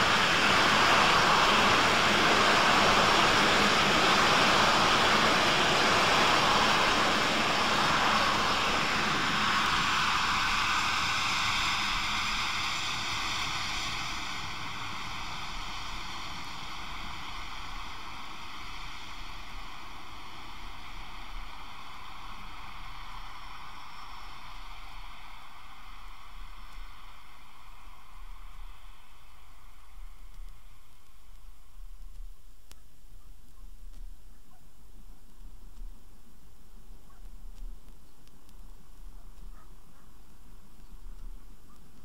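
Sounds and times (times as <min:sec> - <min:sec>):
rolling train rushing: 0:00.0 - 0:29.0.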